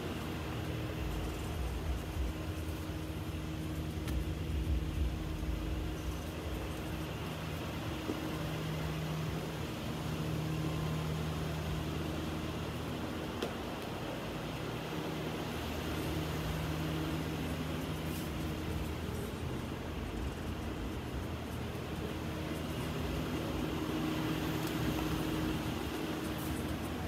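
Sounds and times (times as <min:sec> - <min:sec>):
droning hum: 0:00.0 - 0:27.0
low rumble: 0:00.8 - 0:07.7.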